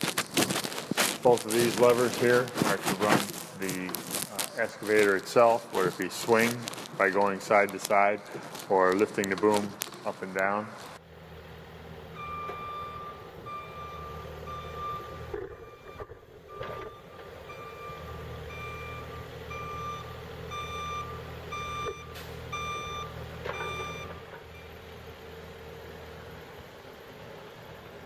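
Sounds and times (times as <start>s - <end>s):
diesel engine humming: 0.0s - 28.0s
excavator travel alarm beeping: 12.2s - 24.8s.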